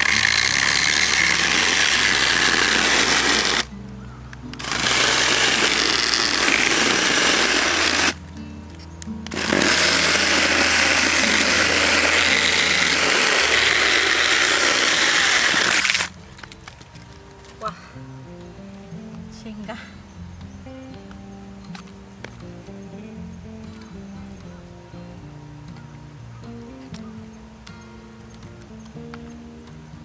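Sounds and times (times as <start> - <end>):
mini chainsaw cutting log: 0.0 - 3.7, 4.6 - 8.2, 9.2 - 16.2.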